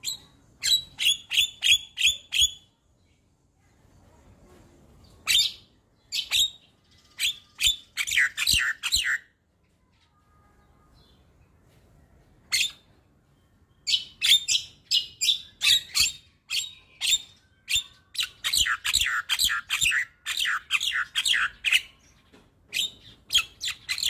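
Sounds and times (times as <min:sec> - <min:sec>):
bird singing: 0:05.2 - 0:11.4, 0:12.5 - 0:24.0.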